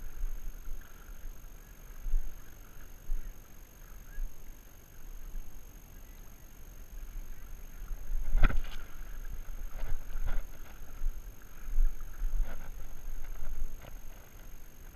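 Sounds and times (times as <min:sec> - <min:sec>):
wind rumble on microphone: 0:00.0 - 0:03.4, 0:07.0 - 0:14.9.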